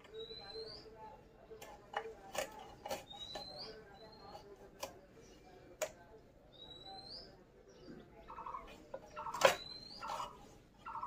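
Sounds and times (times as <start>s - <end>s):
birds calling: 0.0s - 5.7s, 6.5s - 11.0s
knife scraping fish in steel bowl: 1.6s - 4.9s.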